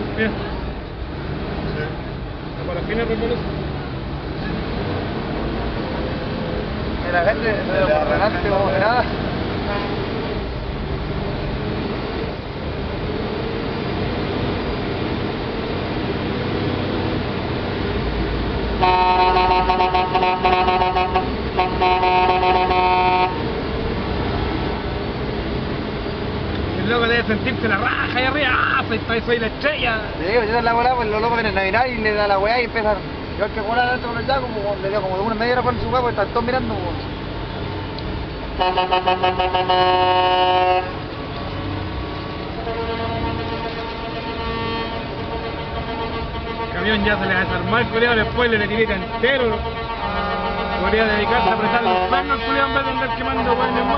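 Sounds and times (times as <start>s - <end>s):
truck air horn blasts: 18.8s - 23.5s, 38.6s - 41.0s, 42.5s - 53.9s.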